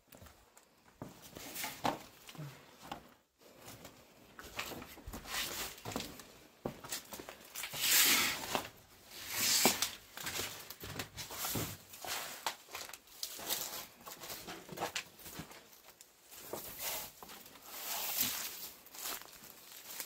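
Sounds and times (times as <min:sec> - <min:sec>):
footsteps and scuffs: 0:02.8 - 0:20.0
rustling: 0:07.1 - 0:20.0.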